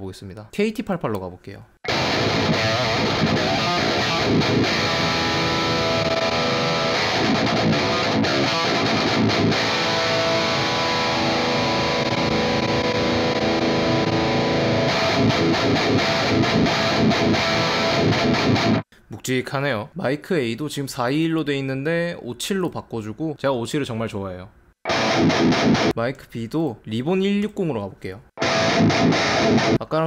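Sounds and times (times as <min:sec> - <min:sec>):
distorted electric guitar riffing: 0:01.8 - 0:18.8, 0:24.8 - 0:25.9, 0:28.4 - 0:29.8.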